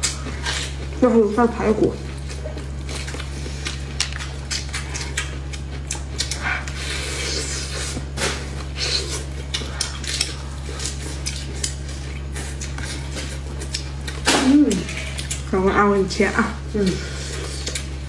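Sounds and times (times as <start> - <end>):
wet chewing and lip smacks: 0.0 - 1.0, 1.9 - 15.5, 17.3 - 18.0
steady low hum: 0.0 - 18.0
meat torn off rib bones: 2.1 - 15.5.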